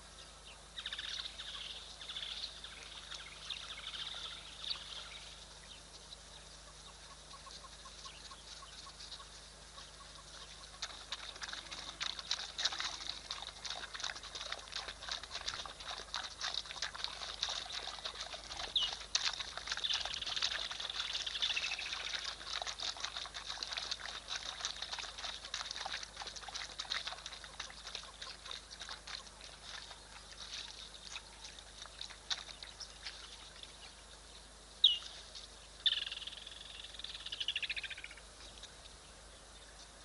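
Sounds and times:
animal clicks and chirps: 7.3 - 33.8, 35.8 - 38.8.

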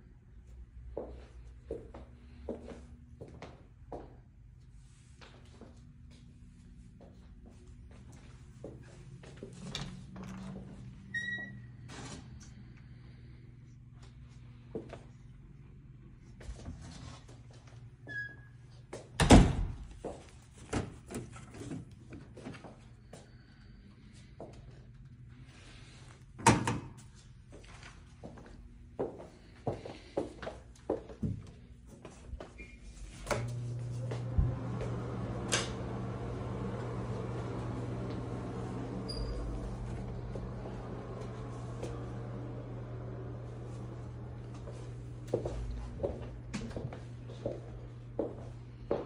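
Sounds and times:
low hum: 32.6 - 48.7
high squeak: 39.1 - 39.7.

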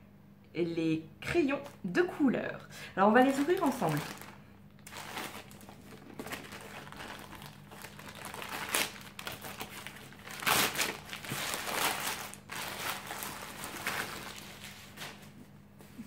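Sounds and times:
plastic bag tearing and crinkling: 3.2 - 15.2.

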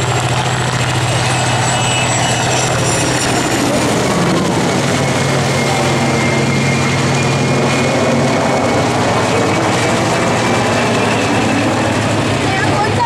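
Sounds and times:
low hum: 0.0 - 12.5
helicopter rotor and engines: 0.0 - 13.0
thin high whine: 1.0 - 9.5.

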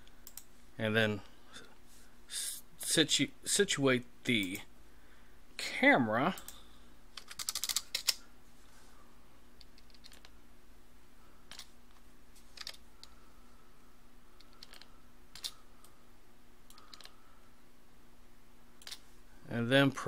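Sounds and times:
faint steady hum: 0.0 - 20.0
keyboard typing: 7.2 - 8.2, 9.6 - 10.3, 12.6 - 13.2, 14.4 - 15.6, 16.7 - 17.1.

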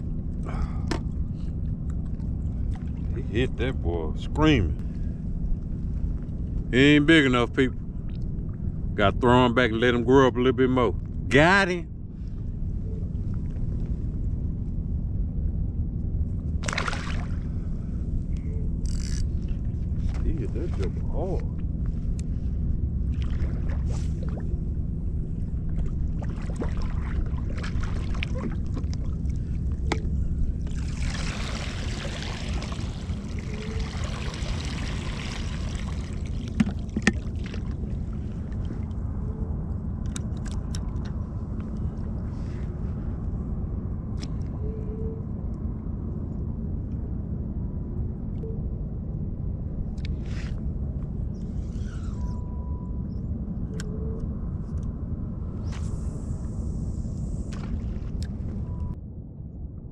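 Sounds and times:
steady low rumble: 0.0 - 59.9
water sloshing and splashing: 1.8 - 3.2, 16.6 - 17.8, 18.8 - 21.2, 23.0 - 39.2, 57.5 - 59.0.

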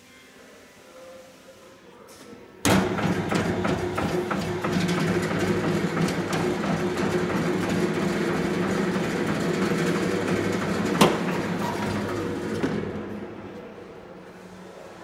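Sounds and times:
meat slicer running: 2.7 - 13.3.

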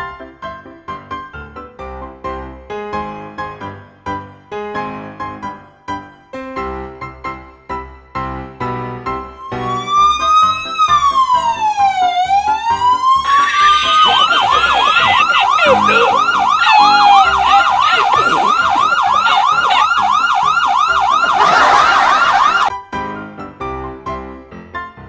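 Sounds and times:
police siren wailing and yelping: 9.4 - 22.7.

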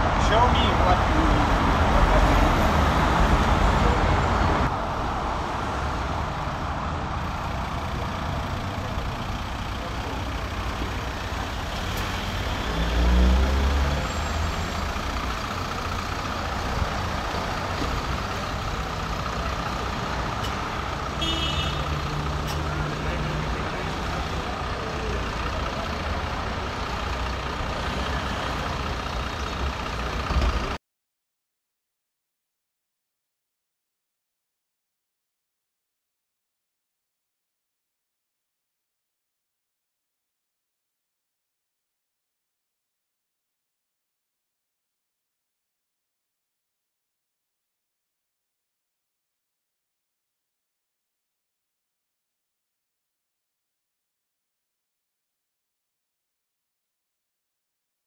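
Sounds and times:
bus passing with rumble: 0.0 - 30.8
city street traffic: 0.0 - 30.8.

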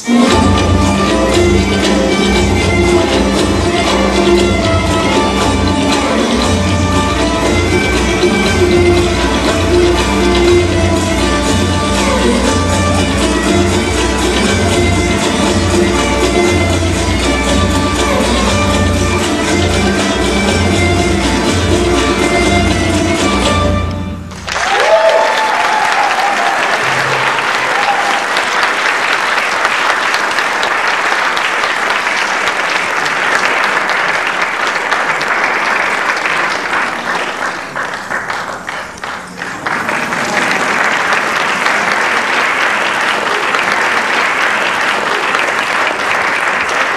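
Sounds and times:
audience applauding: 24.3 - 46.9.

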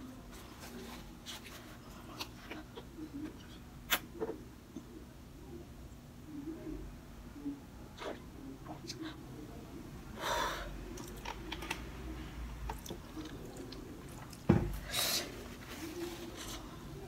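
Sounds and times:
noisy breath: 10.1 - 10.9, 14.7 - 15.6
person chewing: 12.6 - 14.4.

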